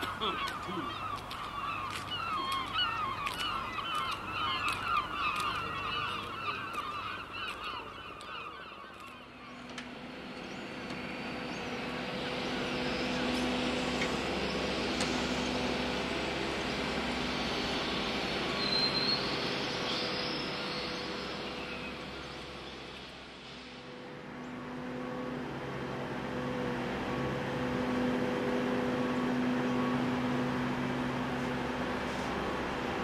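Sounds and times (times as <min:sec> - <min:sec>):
geese honking: 0:00.0 - 0:09.1
engine drone: 0:00.0 - 0:33.0.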